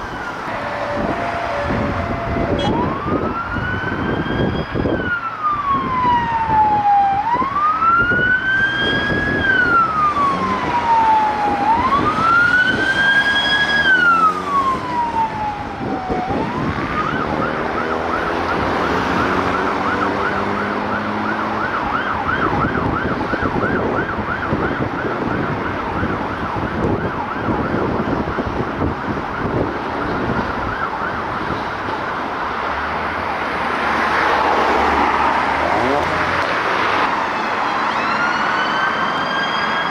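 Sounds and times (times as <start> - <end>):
emergency siren wailing and yelping: 0.0 - 39.9
vehicle engine accelerating: 16.4 - 21.8.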